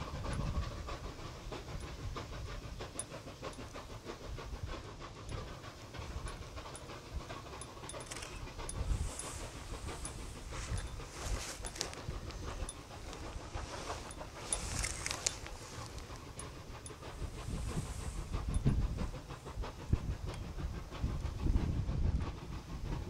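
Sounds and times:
steam locomotives chuffing: 0.0 - 23.0.

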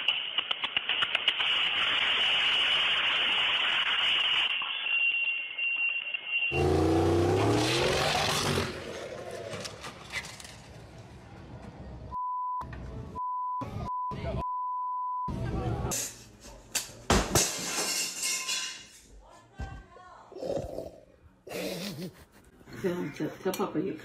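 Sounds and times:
car engine revving hard: 6.5 - 9.4
pure beep tone: 12.2 - 15.3.

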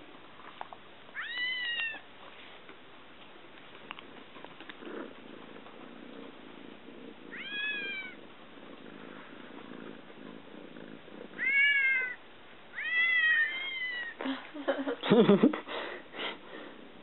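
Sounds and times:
kitten meowing: 1.2 - 2.0, 7.3 - 8.2, 11.4 - 14.2.

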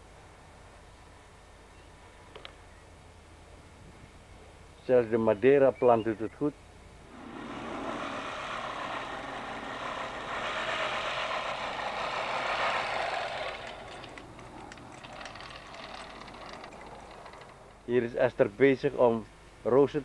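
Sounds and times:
reel mower blades whirring: 7.1 - 17.9
faint ticks of mower: 7.1 - 18.3.

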